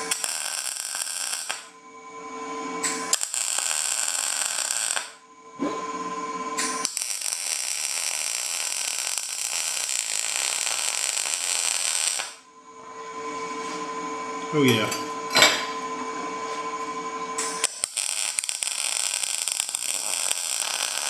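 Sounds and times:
welder arc buzzing: 0.0 - 1.8, 2.8 - 5.2, 6.6 - 12.5, 17.4 - 21.0.

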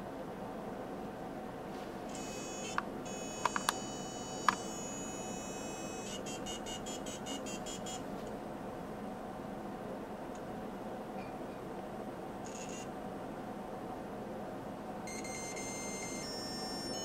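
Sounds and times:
dial tone: 2.2 - 8.0, 15.1 - 17.0
sharp clicks: 2.7 - 3.8.

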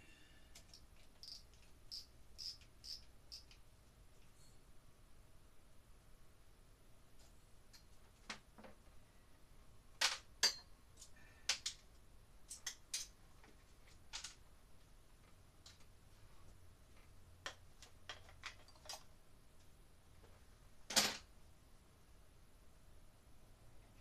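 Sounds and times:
tools clicking and tapping: 0.6 - 3.6, 10.0 - 11.8, 12.5 - 13.2.

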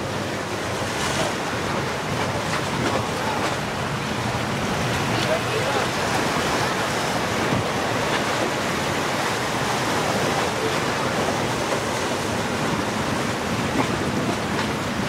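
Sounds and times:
surf and breaking waves: 0.0 - 15.0.

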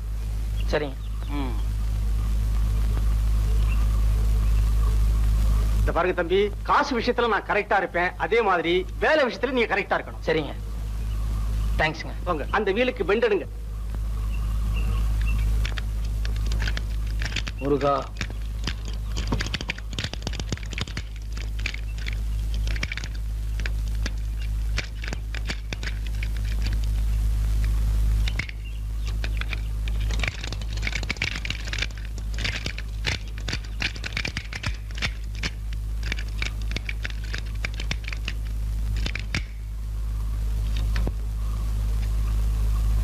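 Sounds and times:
low hum: 0.0 - 43.0
bicycle wheel clicking and scraping: 15.2 - 39.6.

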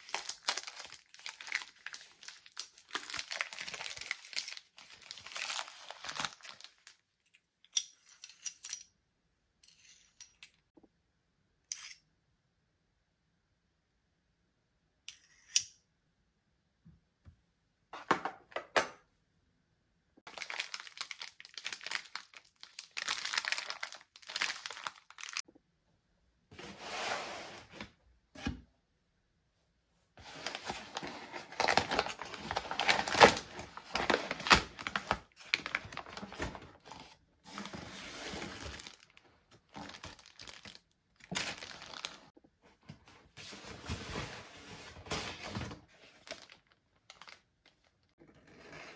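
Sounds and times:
wrapping crumpled and torn: 0.0 - 7.1, 20.2 - 25.4, 30.2 - 42.3, 46.0 - 48.2.

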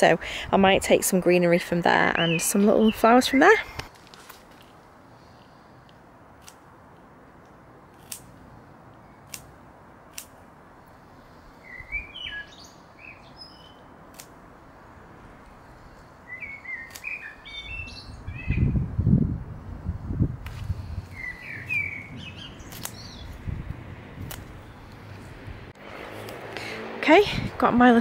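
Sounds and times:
songbird singing: 1.4 - 3.8, 11.2 - 14.1, 14.7 - 19.2, 20.6 - 25.3
flowers rustling near microphone: 2.4 - 5.8, 19.6 - 27.8
stems snapping: 5.9 - 6.7, 7.4 - 8.3, 9.3 - 9.5, 10.1 - 10.4, 14.1 - 14.4, 16.8 - 17.2, 22.6 - 23.4, 24.2 - 25.3, 26.2 - 26.7.

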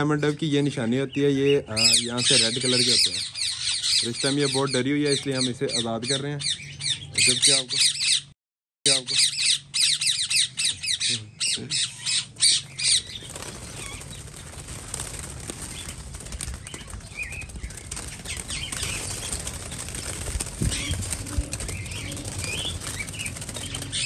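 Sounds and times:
birds squawking: 0.2 - 8.3, 8.9 - 24.0
wings flapping: 12.1 - 24.0.

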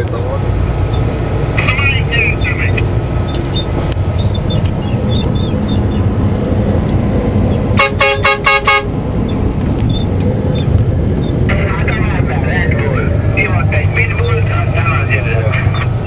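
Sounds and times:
vehicle engine and road noise: 0.0 - 16.0
horn short toots: 7.8 - 8.9.

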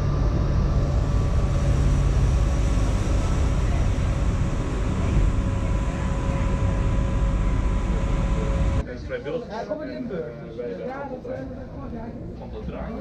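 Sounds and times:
electric locomotive whine: 0.0 - 8.8
low rumble: 0.0 - 8.8.

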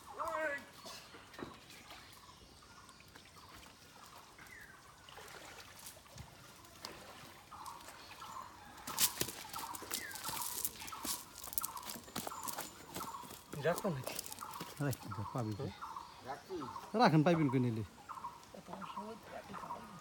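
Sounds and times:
net crackling on dry leaves: 8.8 - 15.3.

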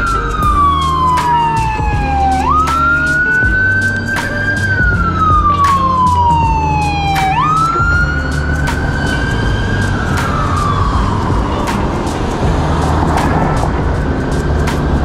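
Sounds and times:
emergency siren wailing: 0.0 - 15.0
low rumble: 0.1 - 15.0.

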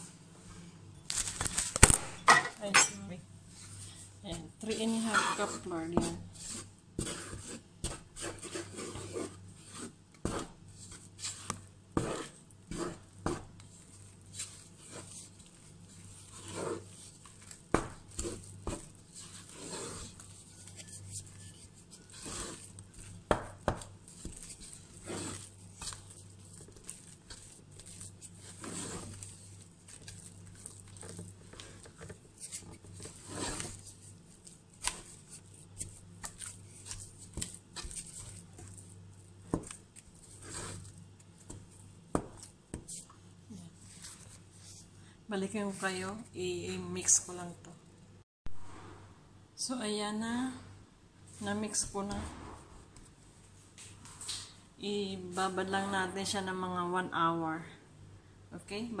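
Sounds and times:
wooden spoon scraping metal bowl: 2.7 - 41.8, 51.4 - 53.1.

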